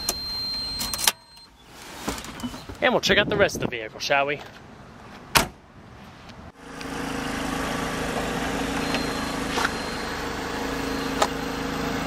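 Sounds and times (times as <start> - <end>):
car door latch click: 5.3 - 5.6
engine idling hum: 6.5 - 12.0.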